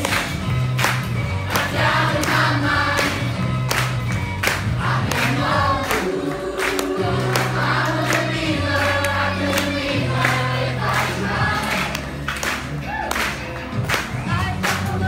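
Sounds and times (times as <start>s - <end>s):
instrumental accompaniment with beat: 0.0s - 15.0s
cast singing together: 1.5s - 3.3s, 4.8s - 12.1s.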